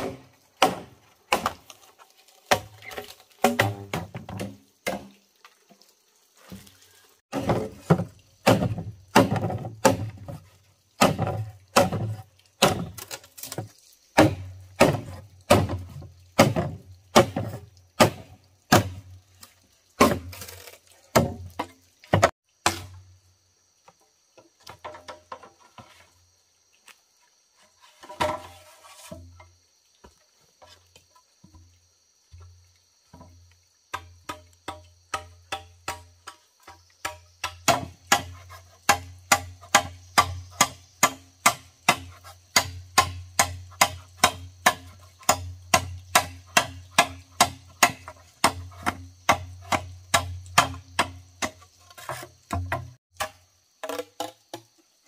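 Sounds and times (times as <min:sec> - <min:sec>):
blade chopping into wood: 0:00.0 - 0:01.8, 0:03.4 - 0:05.0, 0:08.4 - 0:10.2, 0:11.0 - 0:13.6, 0:14.2 - 0:19.0, 0:37.0 - 0:51.6.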